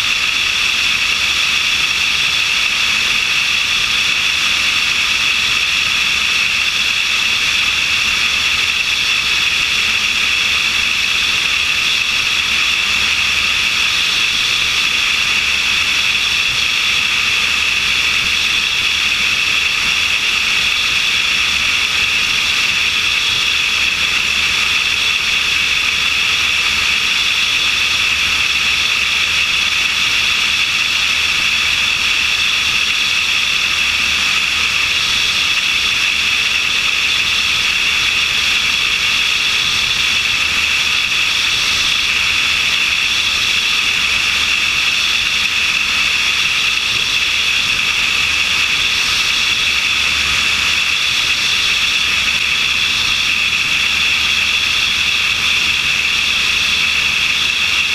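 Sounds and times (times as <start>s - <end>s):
light aircraft engine: 0.0s - 57.9s.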